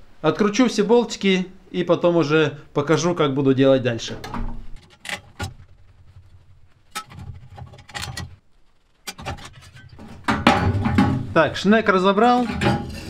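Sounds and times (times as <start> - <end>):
metallic clicks and knocks: 4.2 - 8.4, 9.0 - 11.4.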